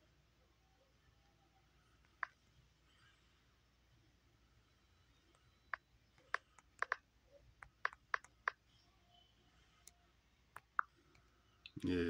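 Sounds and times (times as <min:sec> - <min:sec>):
fingertip taps on touchscreen: 0:05.7 - 0:07.0, 0:07.6 - 0:08.6, 0:10.6 - 0:10.9.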